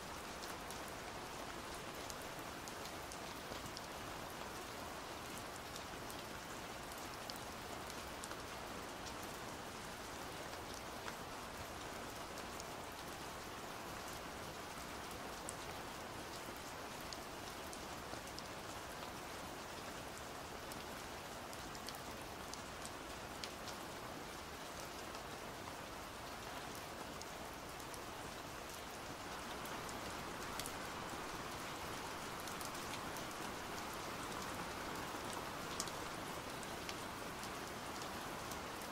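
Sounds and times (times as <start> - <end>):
pouring rain: 0.0 - 38.9
raindrops ticking: 29.3 - 38.8.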